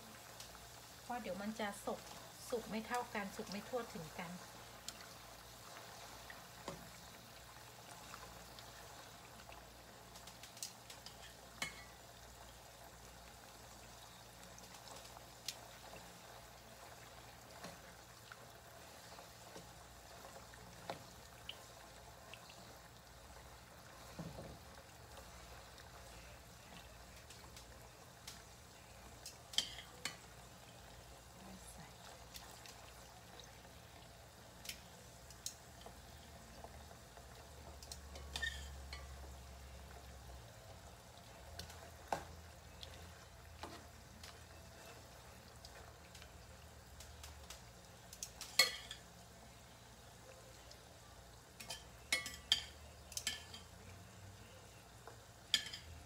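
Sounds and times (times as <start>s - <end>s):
meat sizzling in oil: 0.0s - 56.0s
clicks and pops of stirring: 45.6s - 49.0s, 51.6s - 53.7s.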